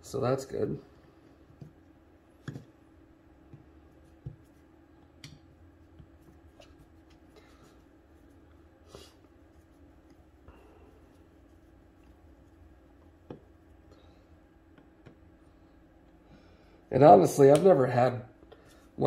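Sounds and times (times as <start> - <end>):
low background hum: 0.0 - 19.0.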